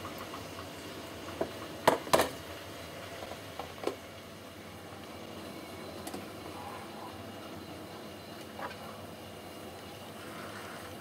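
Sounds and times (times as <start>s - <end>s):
electric kettle clicks and knocks: 1.3s - 2.4s, 3.2s - 4.0s.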